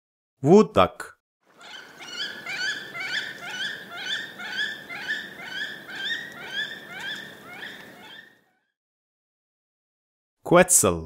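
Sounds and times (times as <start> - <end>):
duck squeaky calls: 1.6 - 8.5.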